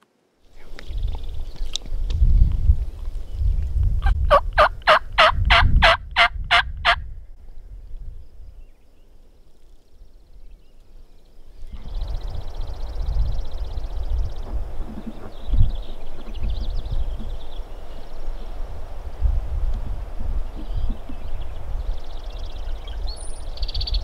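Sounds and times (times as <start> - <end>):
wind rumble on microphone: 0.5 - 24.0
turkey yelps: 4.0 - 7.0.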